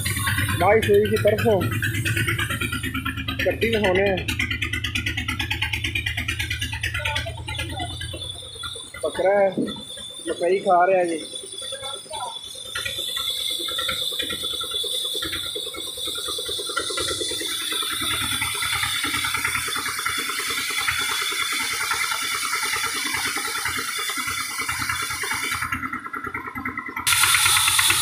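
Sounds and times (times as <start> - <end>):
engine running with rattle: 0.0 - 28.0.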